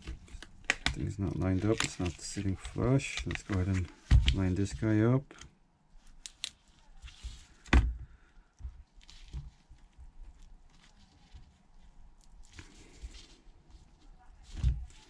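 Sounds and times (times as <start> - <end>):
glove rustling: 0.0 - 5.0, 6.0 - 15.0.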